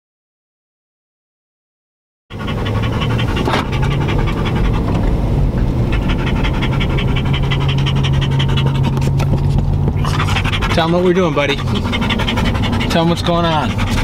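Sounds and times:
dog panting: 0:02.3 - 0:14.0
road noise inside cab: 0:02.3 - 0:14.0
truck engine humming: 0:02.3 - 0:14.0.

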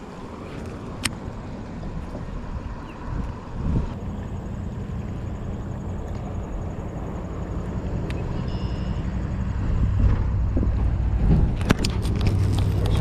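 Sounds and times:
road traffic: 0:00.0 - 0:13.0
wind rumbling on microphone: 0:00.0 - 0:13.0
steady low hum: 0:03.7 - 0:13.0.

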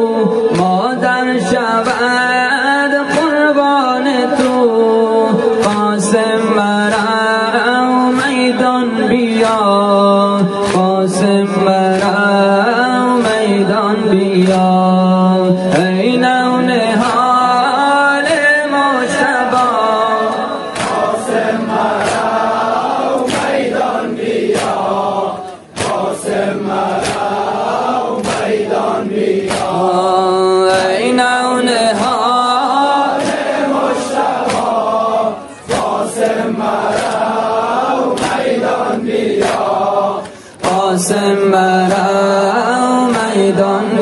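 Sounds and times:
person chanting a lament: 0:00.0 - 0:44.0
singer breathing: 0:40.2 - 0:40.6.

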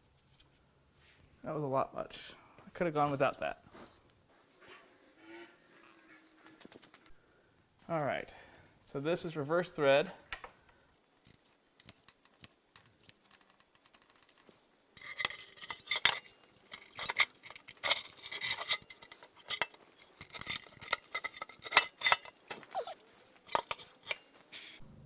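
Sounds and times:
hand tools clinking on metal: 0:13.3 - 0:24.5.

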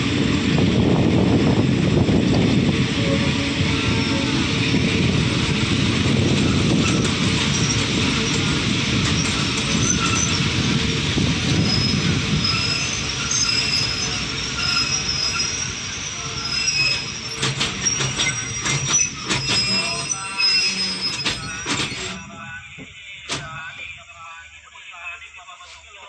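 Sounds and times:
train wheels squealing: 0:02.6 - 0:22.8.

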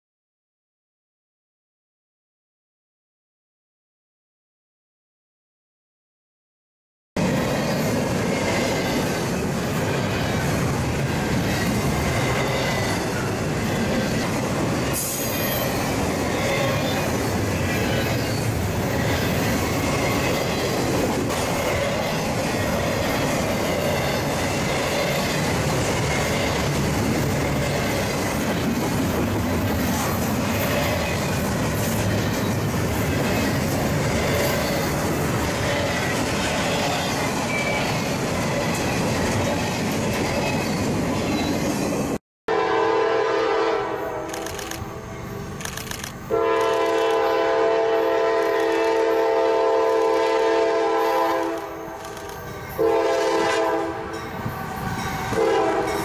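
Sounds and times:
steel wheels rolling on rail: 0:07.2 - 0:42.2, 0:44.4 - 0:56.0.

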